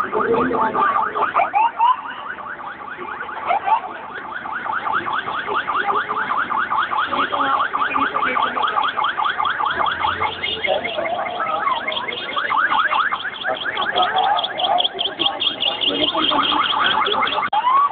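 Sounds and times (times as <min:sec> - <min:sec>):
siren yelping: 0:00.0 - 0:17.9.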